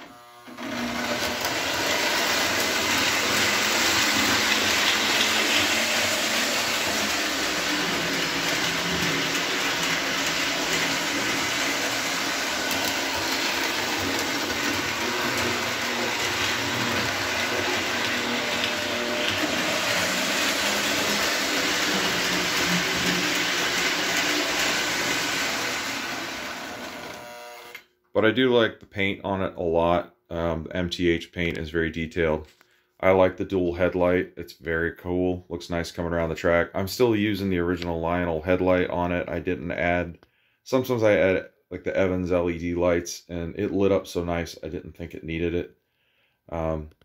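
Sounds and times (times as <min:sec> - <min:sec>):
model train motor gear growl: 0:00.0 - 0:27.4
model train wheels rolling on track: 0:00.8 - 0:27.2.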